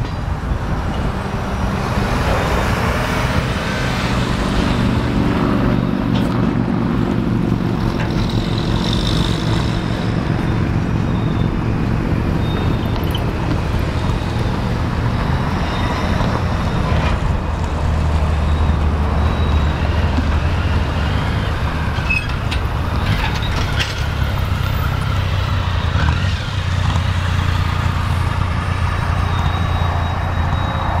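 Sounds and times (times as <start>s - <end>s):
high squeal: 8.1s - 17.3s, 18.2s - 25.2s, 27.5s - 31.0s.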